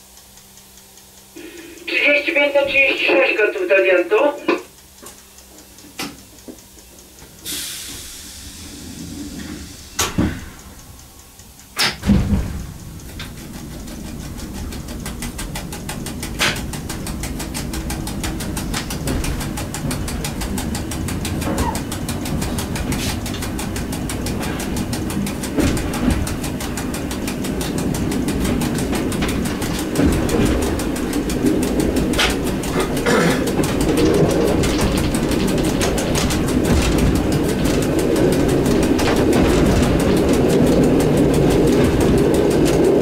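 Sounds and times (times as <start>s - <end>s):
clicks: 0.0s - 43.0s
train motors and wheels rumbling: 0.0s - 43.0s
air hiss: 1.4s - 2.0s, 7.4s - 10.8s
loud clunks: 11.8s - 14.7s.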